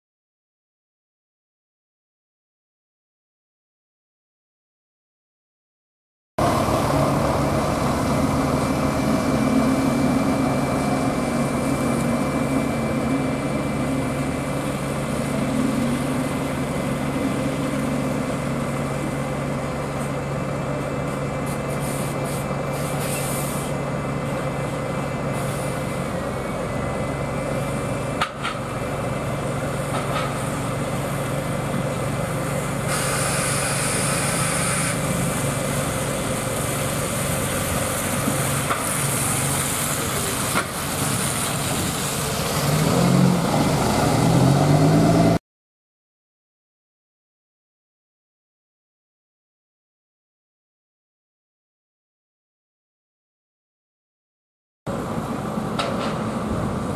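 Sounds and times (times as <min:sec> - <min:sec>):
diesel bus engines idling: 0:06.4 - 0:45.4, 0:54.9 - 0:56.9
hiss: 0:21.4 - 0:23.8, 0:25.3 - 0:26.1, 0:32.8 - 0:42.7.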